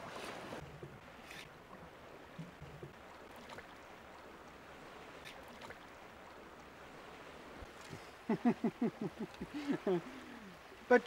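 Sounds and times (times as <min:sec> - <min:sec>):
sea swell: 0:00.0 - 0:00.6.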